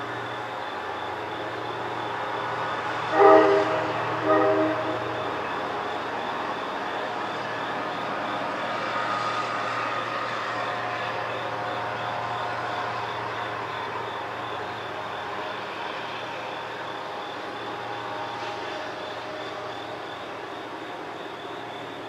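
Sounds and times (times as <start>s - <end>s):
high insect trill: 0.0s - 22.0s
distant horn blasts: 3.1s - 5.5s.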